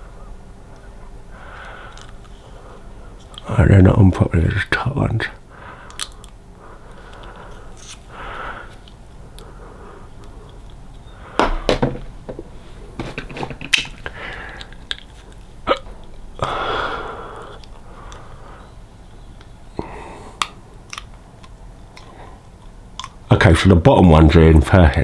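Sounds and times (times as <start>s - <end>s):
breathy hiss: 0.0s - 3.6s, 5.3s - 11.7s, 14.0s - 15.3s, 16.3s - 20.9s
mouth and breath noises: 5.4s - 11.4s, 12.5s - 15.5s, 16.4s - 20.8s
plastic trays clicking onto teeth: 5.8s - 6.4s, 20.4s - 22.2s, 23.0s - 23.2s.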